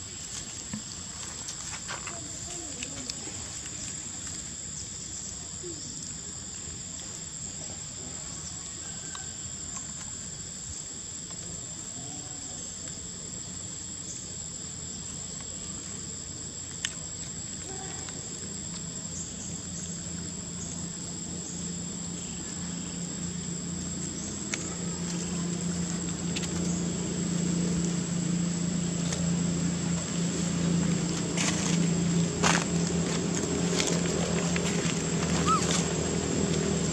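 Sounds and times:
low hum: 18.8s - 36.9s.

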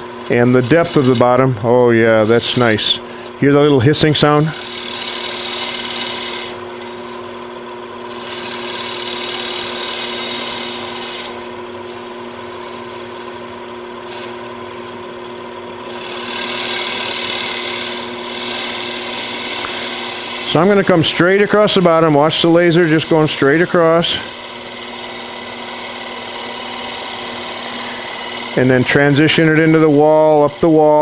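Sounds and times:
lathe humming: 0.0s - 31.0s
cutter hissing on wood: 4.3s - 6.6s, 8.1s - 11.6s, 15.8s - 31.0s.

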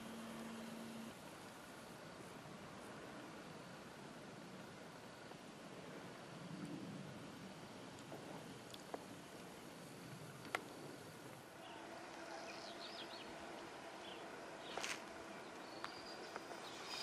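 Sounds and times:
faint steady hum: 0.0s - 17.0s
small birds chirping: 11.6s - 17.0s.

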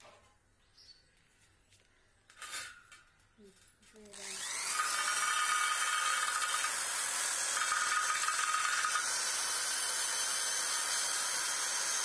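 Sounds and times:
wire brush scraping metal: 2.3s - 4.2s.

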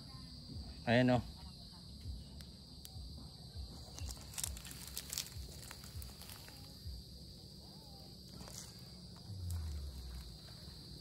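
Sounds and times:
high-pitched insect drone: 0.0s - 11.0s
faint footsteps: 3.1s - 7.2s.

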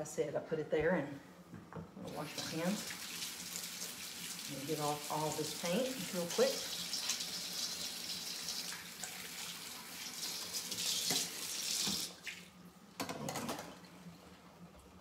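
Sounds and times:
faucet running: 2.0s - 12.5s.

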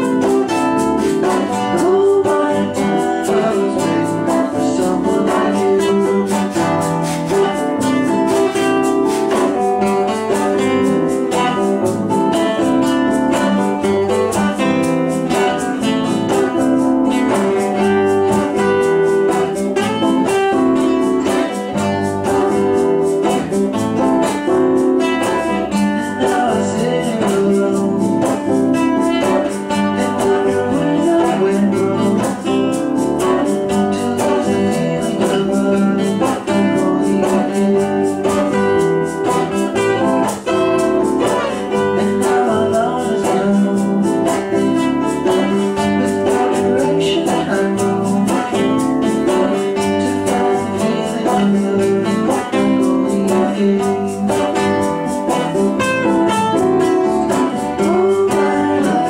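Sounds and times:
band playing with guitar: 0.0s - 59.0s.

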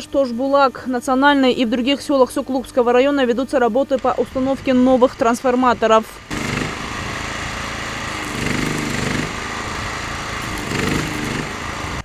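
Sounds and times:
engine running: 2.9s - 12.0s
welding arc crackling and hissing: 4.3s - 12.0s.

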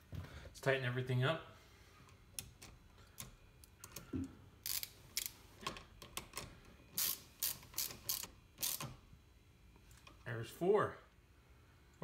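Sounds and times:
ratchet wrench clicking: 4.6s - 5.4s, 7.0s - 8.9s.

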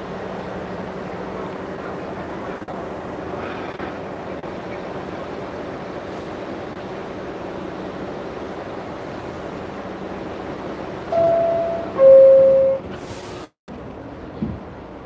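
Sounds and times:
subway car rumble: 0.0s - 15.0s
two-note descending door chime: 11.1s - 12.9s.

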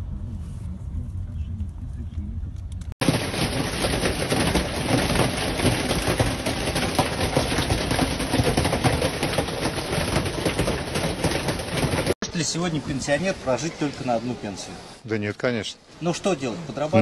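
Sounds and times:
hail clattering on surfaces: 3.0s - 12.2s.

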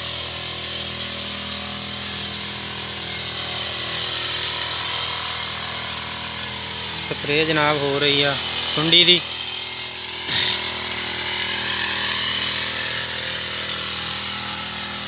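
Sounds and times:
small engine running: 0.0s - 15.0s
hiss: 10.2s - 10.8s.

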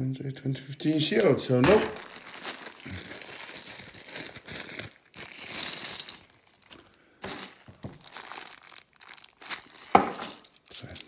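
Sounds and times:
coins shifting in a bag: 0.9s - 2.9s, 5.3s - 6.7s, 8.0s - 11.0s
plastic bag crinkling: 1.0s - 11.0s.

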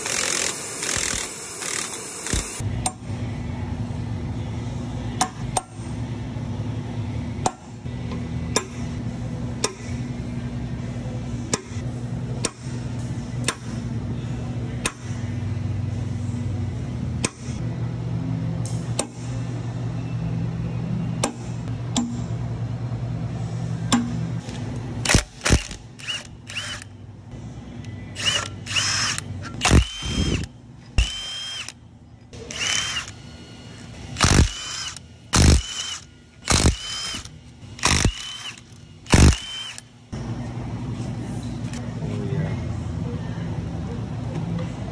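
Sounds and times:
impact wrench bursts: 0.0s - 2.6s, 24.4s - 26.9s, 28.2s - 31.8s, 32.4s - 33.2s, 34.1s - 39.9s
steady low hum: 0.0s - 44.9s
hammer striking steel punch: 21.2s - 22.2s.

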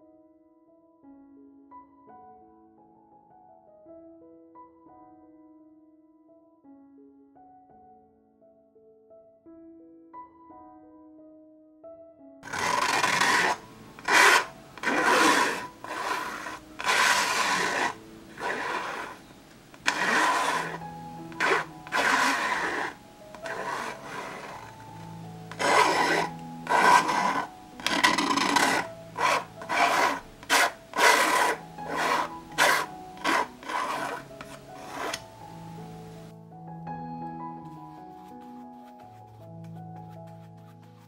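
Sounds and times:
soft background music: 0.0s - 41.0s
palette knife scraping canvas: 12.4s - 24.8s, 25.5s - 35.3s, 38.1s - 41.0s.

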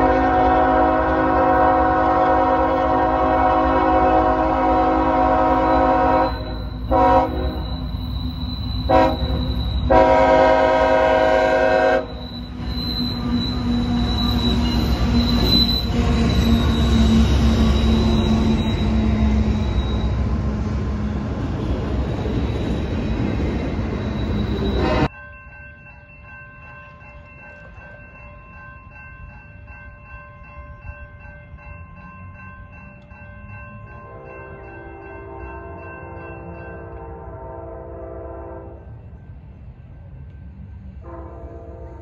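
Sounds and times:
diesel locomotive engines droning: 0.0s - 25.1s, 26.5s - 42.0s
grade-crossing bell ringing: 0.0s - 42.0s
train wheel squeal: 4.7s - 25.1s.

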